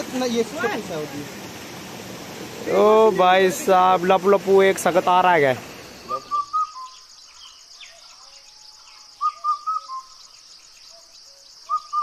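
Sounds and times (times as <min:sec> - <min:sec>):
birds whistling phrase: 0:05.8 - 0:12.0
fainter lower bird notes: 0:06.0 - 0:10.8.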